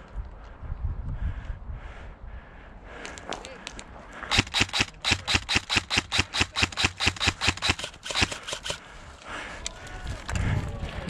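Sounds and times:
airsoft rifle firing clicks: 4.3s - 8.9s.

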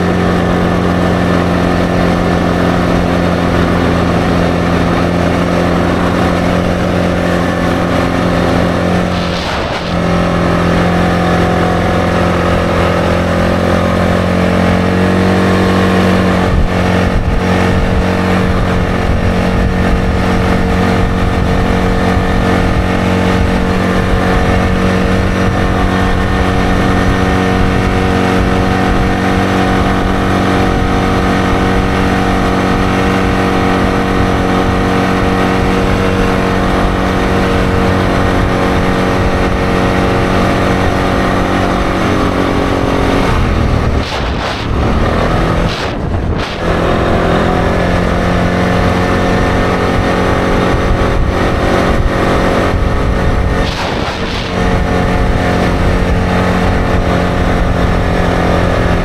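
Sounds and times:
atv engine running: 0.0s - 59.0s.

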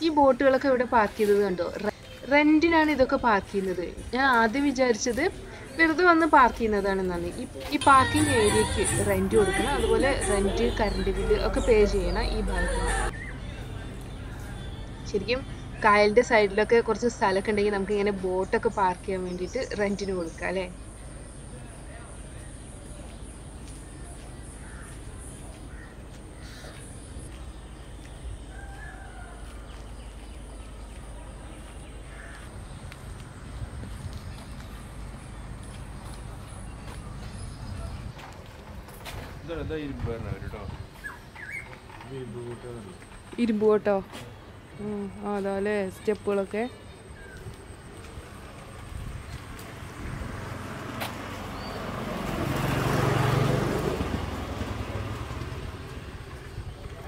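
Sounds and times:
bird calls: 18.8s - 38.2s, 40.7s - 48.7s
vehicle engine passing by: 48.2s - 57.0s.

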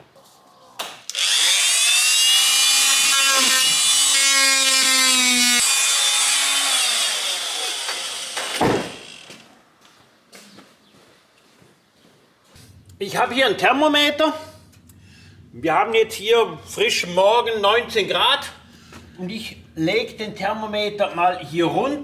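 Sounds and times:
power saw cutting wood: 1.1s - 9.5s.

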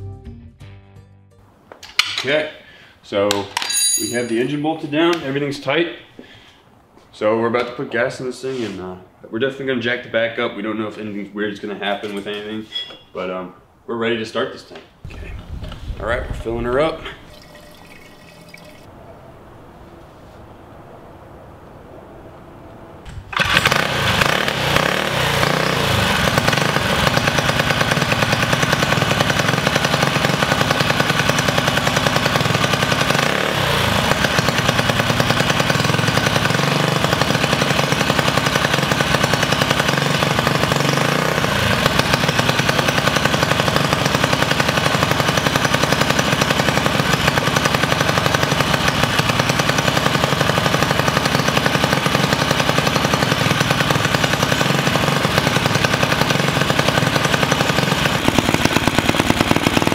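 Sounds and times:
minibike engine revving: 23.2s - 59.9s.

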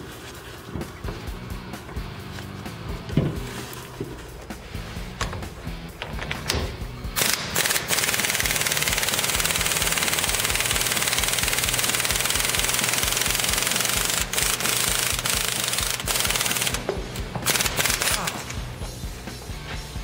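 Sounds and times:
air impact wrench hammering: 6.5s - 18.8s.

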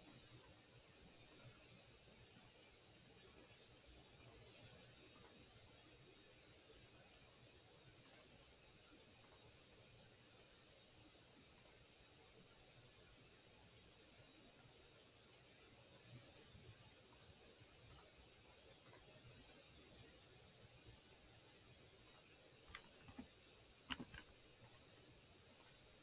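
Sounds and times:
computer mouse clicking: 0.0s - 0.2s, 1.3s - 1.6s, 3.2s - 3.6s, 4.2s - 4.4s, 5.1s - 5.4s, 8.0s - 8.3s, 9.2s - 9.5s, 11.6s - 11.8s, 17.1s - 18.1s, 18.8s - 19.1s, 22.0s - 23.3s, 23.9s - 24.9s, 25.6s - 25.8s
faint room hiss: 0.0s - 26.0s.

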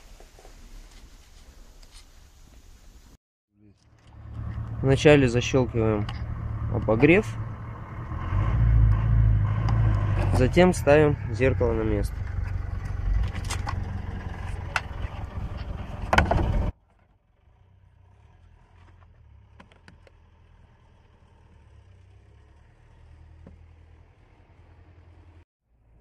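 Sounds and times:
low hum: 3.8s - 16.7s.

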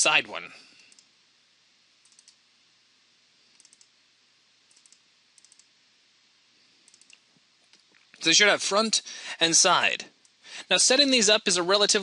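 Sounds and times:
faint computer mouse clicks: 2.0s - 2.4s, 3.5s - 3.9s, 4.7s - 5.7s, 6.8s - 7.8s.

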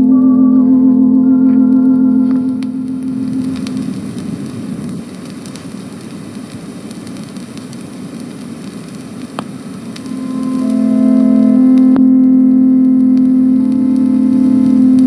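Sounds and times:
organ chord: 0.0s - 3.6s
record surface hiss and crackle: 0.0s - 15.0s.

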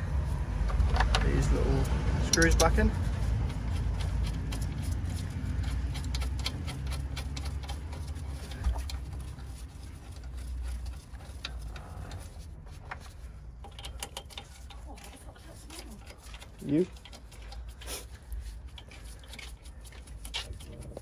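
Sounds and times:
steady low rumble: 0.0s - 13.6s.

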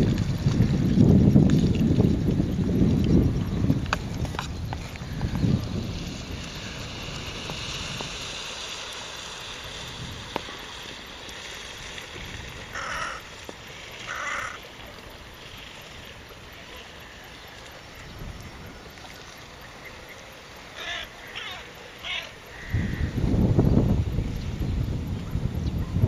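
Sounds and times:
wind rumble on microphone: 0.0s - 16.7s, 17.8s - 19.7s, 22.5s - 26.0s
faint outdoor hiss: 0.0s - 26.0s
crow cawing: 12.7s - 13.3s, 14.0s - 14.6s, 20.8s - 23.1s.

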